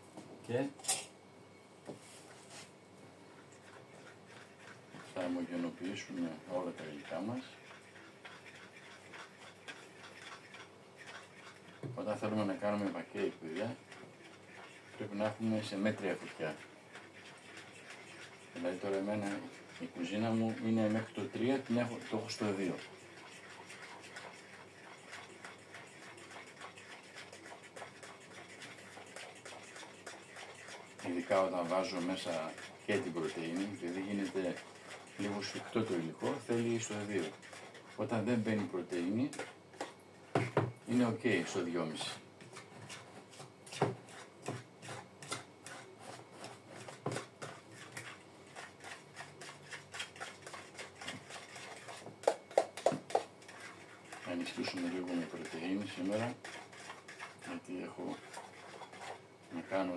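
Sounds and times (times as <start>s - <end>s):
utensil beating batter in bowl: 2.4s - 59.9s.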